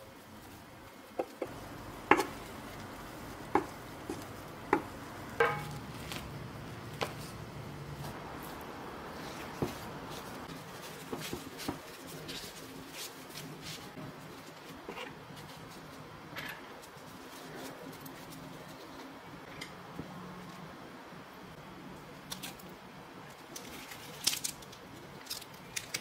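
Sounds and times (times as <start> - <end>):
paper towel rustling: 0.1 - 16.0.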